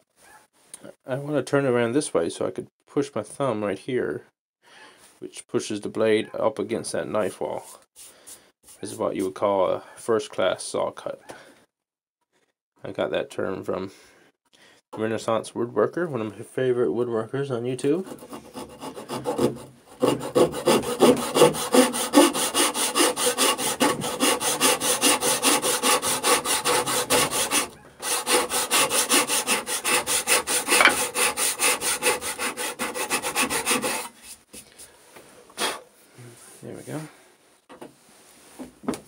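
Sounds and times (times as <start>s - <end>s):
saw cutting wood: 18.0s - 34.2s.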